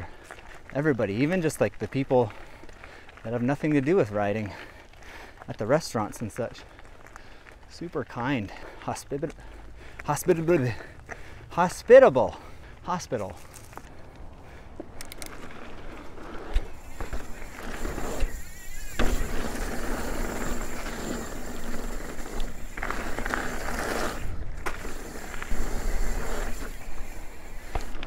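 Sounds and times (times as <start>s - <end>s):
bike tyres rolling on dirt: 0.0s - 28.0s
bike knocking and rattling: 14.8s - 28.0s.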